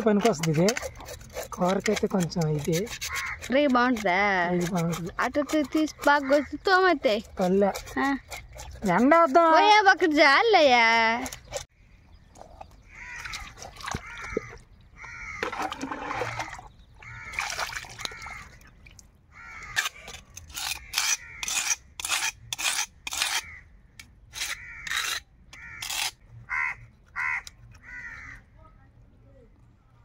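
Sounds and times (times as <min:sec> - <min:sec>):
crows cawing: 0:03.0 - 0:03.5, 0:06.0 - 0:06.6, 0:12.8 - 0:18.7, 0:19.3 - 0:20.1, 0:20.7 - 0:21.6, 0:23.3 - 0:23.7, 0:24.4 - 0:28.5.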